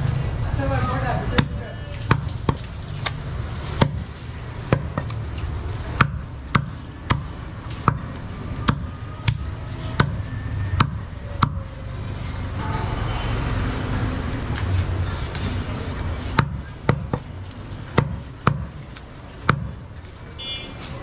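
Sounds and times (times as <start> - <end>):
cleaver chopping meat and bone: 1.3 - 5.2, 6.0 - 11.6, 16.3 - 19.9.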